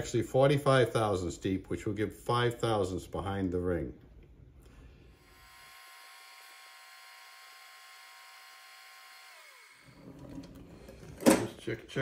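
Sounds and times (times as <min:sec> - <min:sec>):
metal lathe motor whining: 0:05.5 - 0:11.3.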